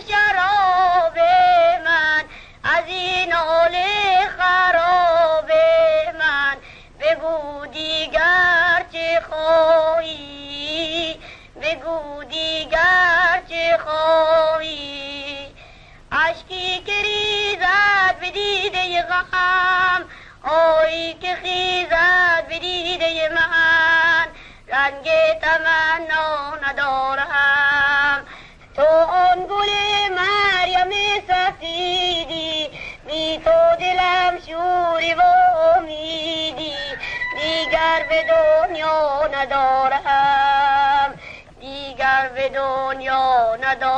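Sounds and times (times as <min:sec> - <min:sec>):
person singing with heavy vibrato: 0:00.0 - 0:43.9
singer breathing: 0:02.3 - 0:02.6, 0:06.6 - 0:07.0, 0:11.2 - 0:11.6, 0:15.5 - 0:16.1, 0:20.1 - 0:20.4, 0:24.3 - 0:24.7, 0:28.2 - 0:28.8, 0:32.7 - 0:33.1, 0:37.0 - 0:37.2, 0:41.1 - 0:41.6.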